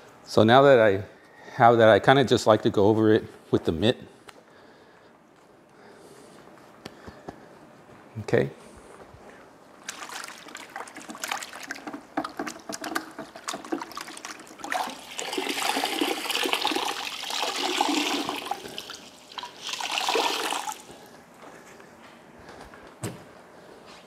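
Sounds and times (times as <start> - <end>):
wash mitt sloshing in bucket: 9.8 - 20.9
water pouring into bucket: 9.8 - 21.0.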